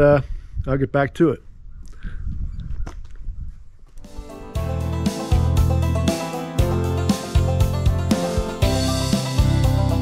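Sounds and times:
plucked notes: 4.1 - 10.0
bass line: 4.2 - 10.0.

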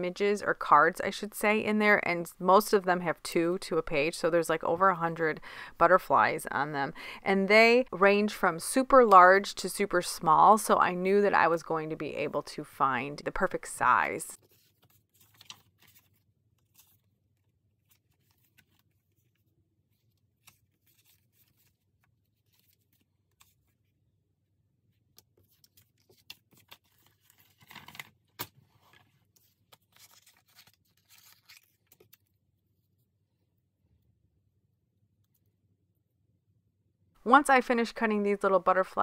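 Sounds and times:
paper cards rustling: 13.5 - 23.8, 25.2 - 32.4.

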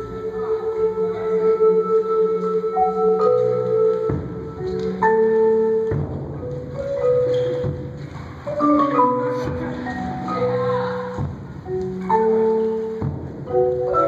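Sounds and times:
marimbas ringing held notes: 0.0 - 14.0
accented percussion hits: 4.0 - 14.0.

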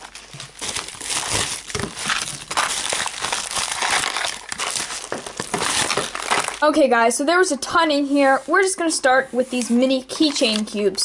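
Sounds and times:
bubble wrap crinkling: 0.0 - 7.0, 9.4 - 11.0.

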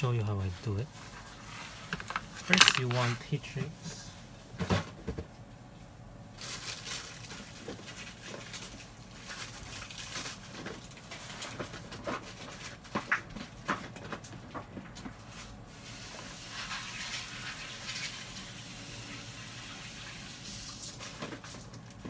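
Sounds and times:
rustling small parts: 1.2 - 3.2.

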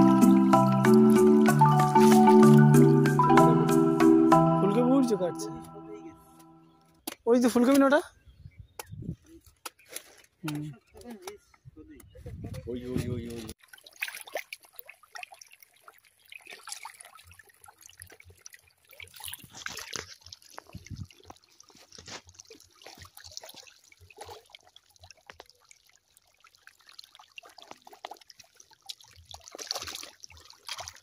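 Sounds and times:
fish splashing at pond surface: 0.0 - 3.0, 13.5 - 31.0.

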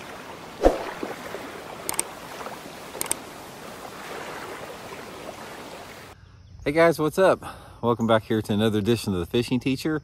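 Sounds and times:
water rushing: 0.0 - 6.2.

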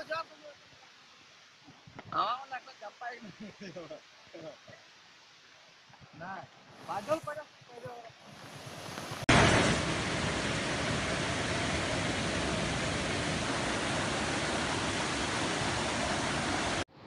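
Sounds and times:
floodwater rushing: 8.1 - 16.9.

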